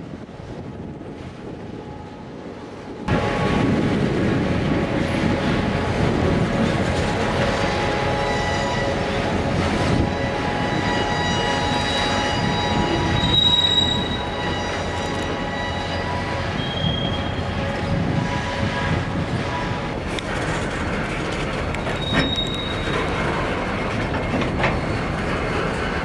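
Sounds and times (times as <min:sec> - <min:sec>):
freight train rumbling on rails: 0:00.0 - 0:26.0
wheels squealing: 0:07.0 - 0:17.7, 0:18.3 - 0:26.0.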